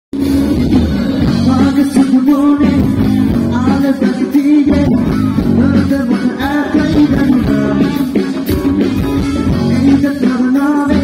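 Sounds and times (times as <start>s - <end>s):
live band playing: 0.1s - 11.0s
guitars: 0.2s - 11.0s
lead singer: 0.5s - 11.0s.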